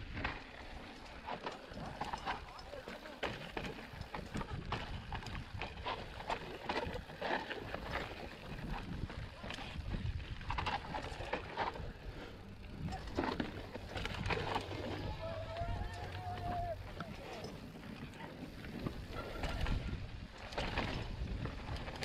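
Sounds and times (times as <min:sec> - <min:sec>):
bike clicks and rattles: 0:00.0 - 0:22.0
tyres crunching over gravel: 0:05.2 - 0:22.0.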